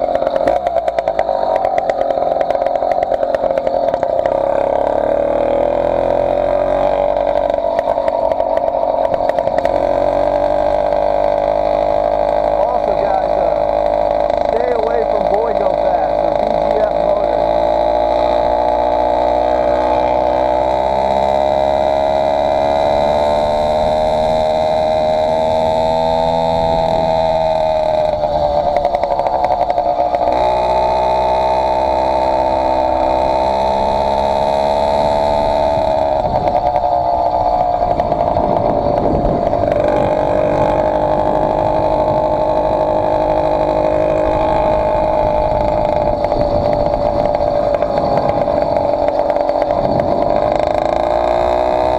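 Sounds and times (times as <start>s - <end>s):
two-stroke engine running hard: 0.0s - 51.9s.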